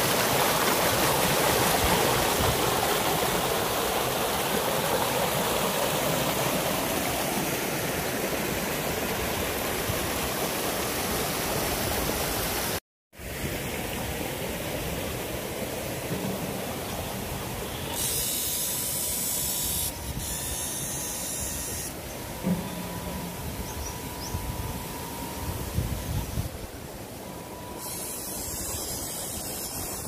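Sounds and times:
rushing flowing water: 0:00.0 - 0:17.9.

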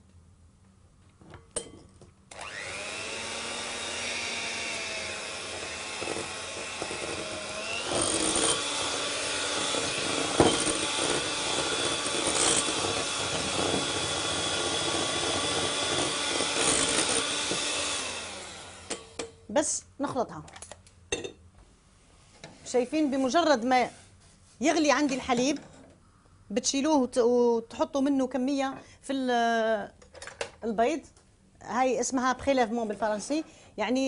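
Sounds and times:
electric hand mixer whine: 0:02.3 - 0:19.2.

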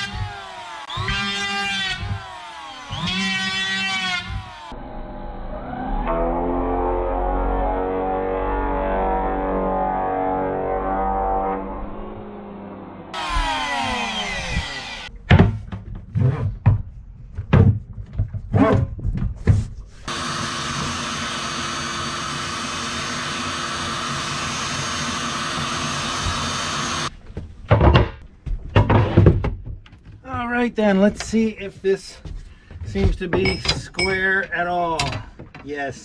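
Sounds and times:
electric planer winding down: 0:00.0 - 0:07.2, 0:13.1 - 0:15.1, 0:20.1 - 0:27.1
shop vacuum running: 0:13.2 - 0:15.1, 0:20.1 - 0:27.1
tool knocks and clunks: 0:27.2 - 0:30.5, 0:32.2 - 0:35.7.

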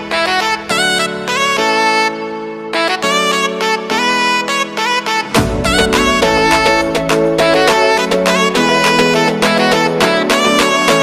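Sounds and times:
melody over steady beat: 0:05.2 - 0:10.1.

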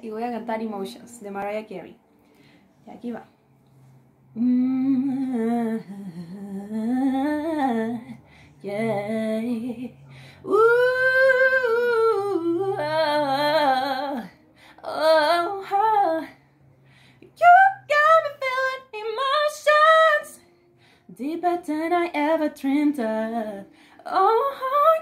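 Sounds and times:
woman singing unaccompanied: 0:04.3 - 0:16.4, 0:17.2 - 0:25.0.

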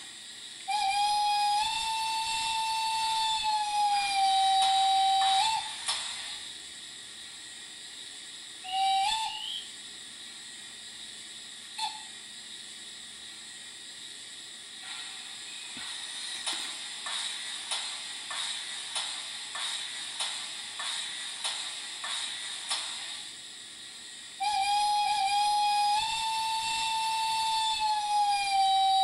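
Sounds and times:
soft steam chuffs: 0:00.0 - 0:29.0
steady steam hiss: 0:00.0 - 0:29.0
model locomotive whistle: 0:00.6 - 0:05.9, 0:08.6 - 0:09.8, 0:11.7 - 0:12.2, 0:24.4 - 0:29.0.

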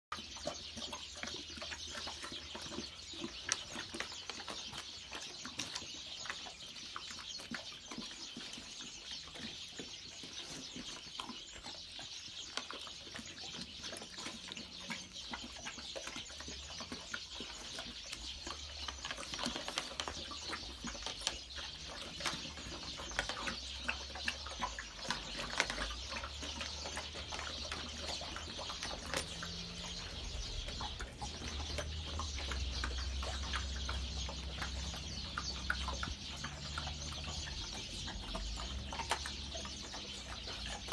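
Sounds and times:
puppies lapping and chewing: 0:00.1 - 0:40.9.

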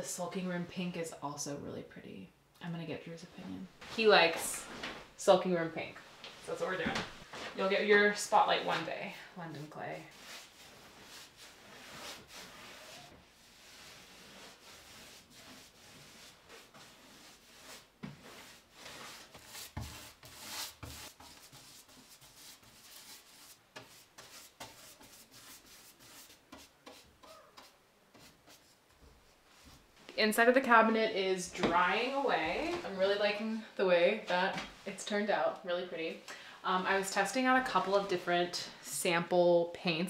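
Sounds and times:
paintbrush swishing on wood: 0:09.6 - 0:29.9.

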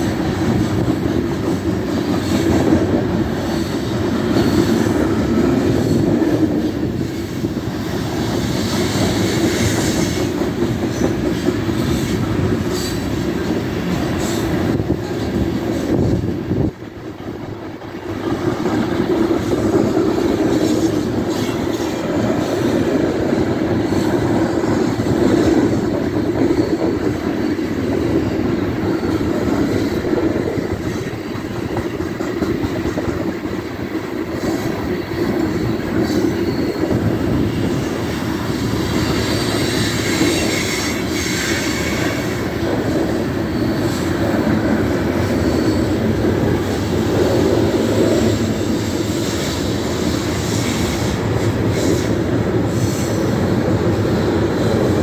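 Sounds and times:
clickety-clack of rails: 0:00.0 - 0:55.0
train wheels rumbling on track: 0:00.0 - 0:55.0
high wheel squeal: 0:20.2 - 0:32.1, 0:34.3 - 0:55.0.

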